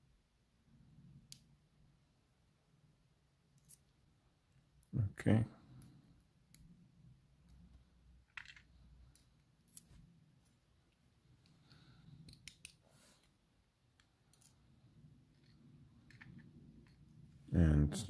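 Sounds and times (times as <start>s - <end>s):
small metallic clicks of lock picking: 3.6s - 3.9s, 11.4s - 12.8s, 14.0s - 14.6s.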